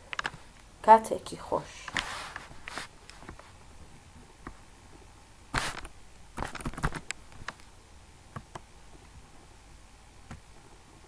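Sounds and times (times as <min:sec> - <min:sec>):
keyboard tapping: 0:06.4 - 0:07.6.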